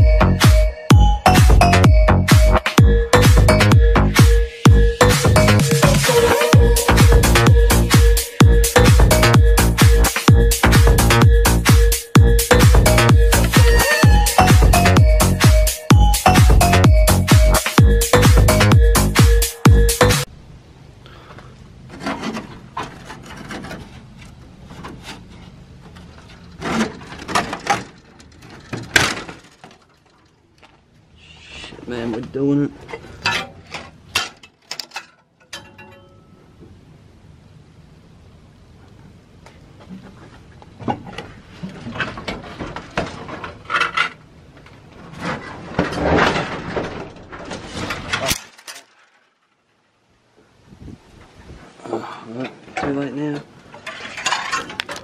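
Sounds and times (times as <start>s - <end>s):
wooden knocks and scrapes: 21.9s - 30.2s, 39.8s - 48.7s, 53.6s - 55.0s
wooden fittings knocking and creaking: 21.9s - 30.8s.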